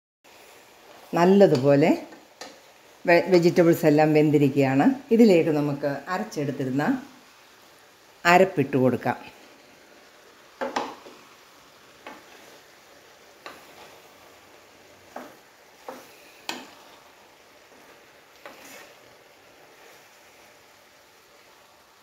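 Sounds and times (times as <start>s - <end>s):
faint hiss of simmering pan: 0.2s - 22.0s
wooden spoon scraping a pan: 0.3s - 3.0s, 9.4s - 22.0s.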